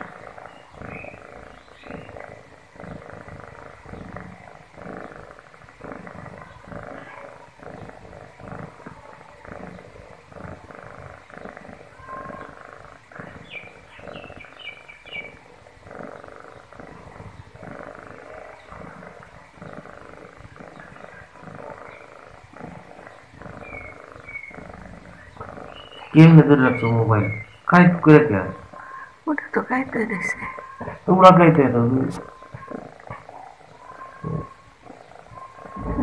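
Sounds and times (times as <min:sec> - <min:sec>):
kitten purring: 0:00.0 - 0:36.0.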